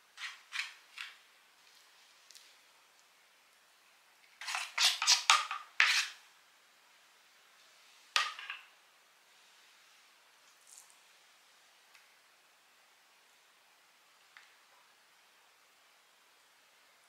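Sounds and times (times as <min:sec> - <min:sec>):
spoon scraping a plate: 0:04.4 - 0:06.2.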